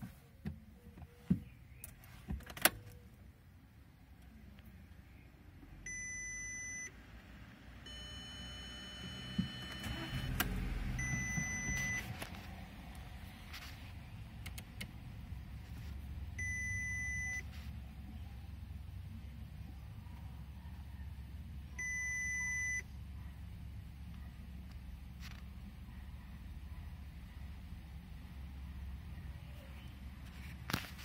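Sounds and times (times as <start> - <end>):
car warning chime: 5.8 - 7.0, 7.8 - 12.1, 16.4 - 17.5, 21.8 - 22.9
car engine cranking and idling: 5.8 - 29.3.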